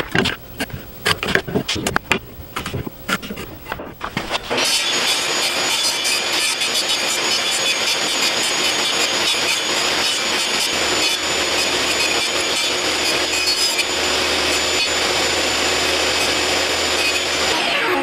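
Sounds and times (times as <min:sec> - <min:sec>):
table saw cutting wood: 0:04.0 - 0:18.0.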